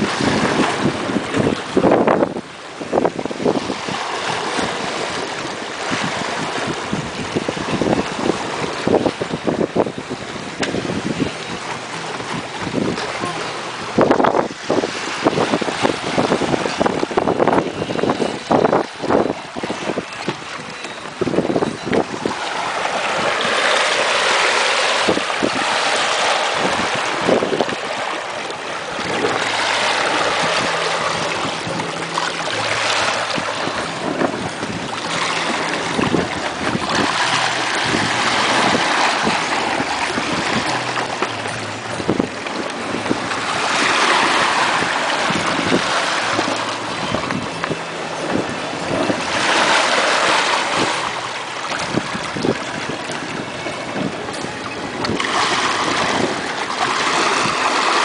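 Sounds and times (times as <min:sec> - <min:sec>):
water rushing along boat hull: 0:00.0 - 0:58.0
wind buffeting microphone: 0:00.0 - 0:58.0.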